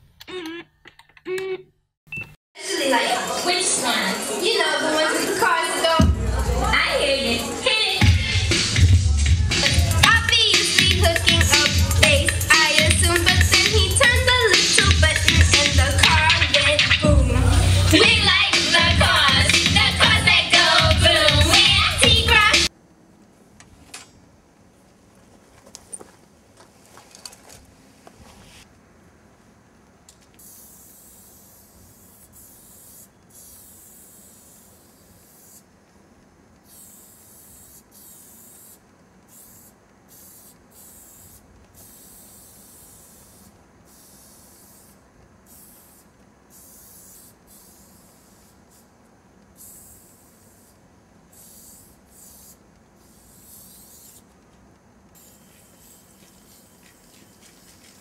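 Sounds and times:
spray paint can hissing: 9.9 - 17.0, 17.7 - 22.7, 30.4 - 35.7, 36.6 - 54.4, 55.1 - 58.0.

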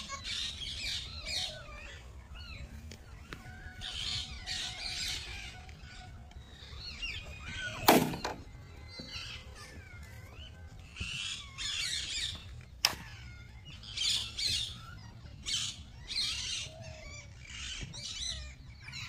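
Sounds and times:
birds squawking and chirping: 0.0 - 19.0.

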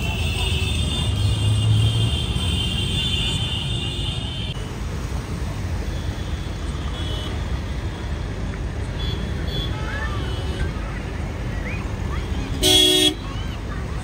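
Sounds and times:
traffic rumbling: 0.0 - 14.0.

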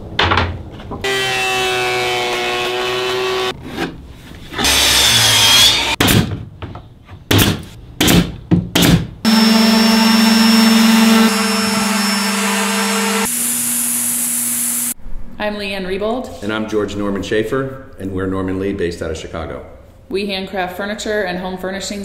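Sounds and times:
hissing machine noise: 9.3 - 15.0
orbital sanders running: 9.3 - 15.0.

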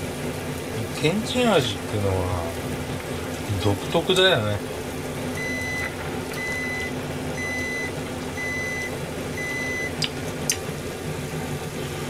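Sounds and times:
appliance alarm beeping: 5.3 - 10.0.

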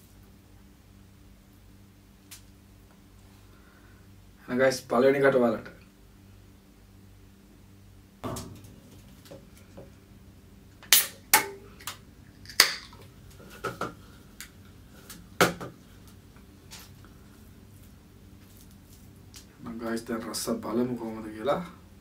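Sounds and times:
eating and handling sounds: 11.8 - 19.5.

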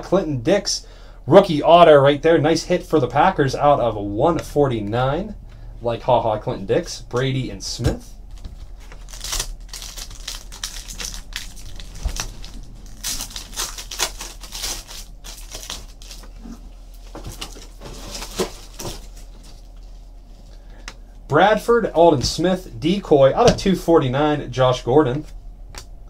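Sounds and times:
foil wrapper crinkling and tearing: 8.3 - 19.6
cards rustling: 8.3 - 19.8.

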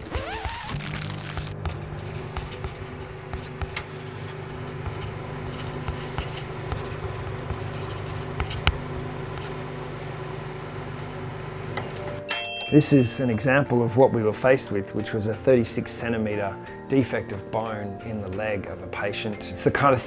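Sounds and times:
pen scratching on paper: 0.4 - 3.8, 4.5 - 9.5
low steady hum: 0.6 - 13.9.

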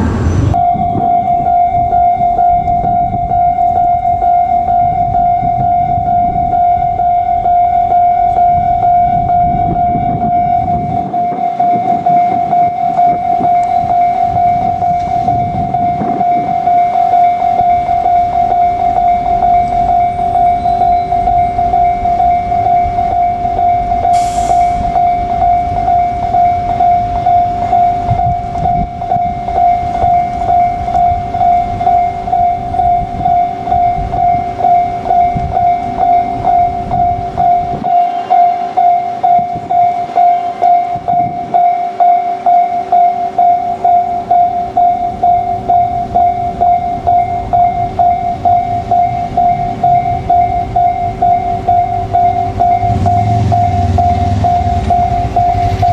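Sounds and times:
low rumble: 0.0 - 4.2
level crossing alarm ringing: 0.5 - 55.9.

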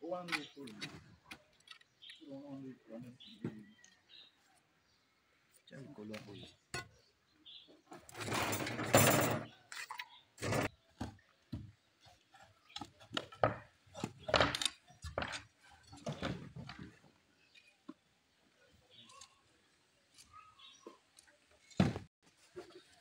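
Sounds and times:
metal clinks and knocks: 8.1 - 9.5.

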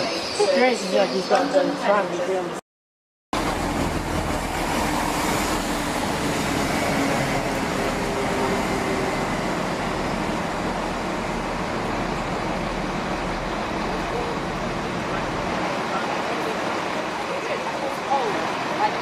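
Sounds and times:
diesel train engine running: 3.4 - 19.0.

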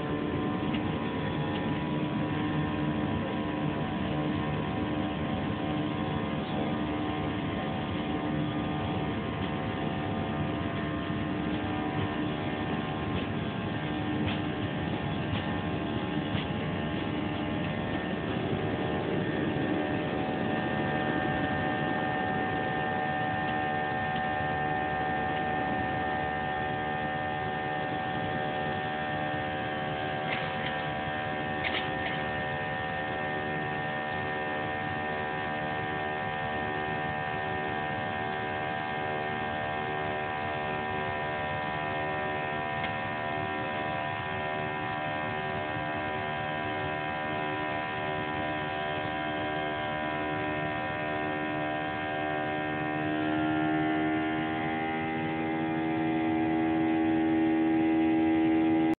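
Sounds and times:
jet engines droning in cabin: 0.0 - 58.9
runway rumble: 9.4 - 24.2.

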